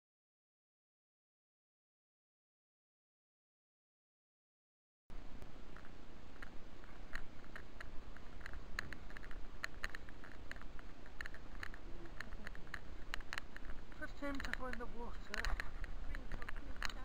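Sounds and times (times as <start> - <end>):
crackling clicks and rustles: 5.1 - 17.0
low wind rumble: 5.1 - 17.0.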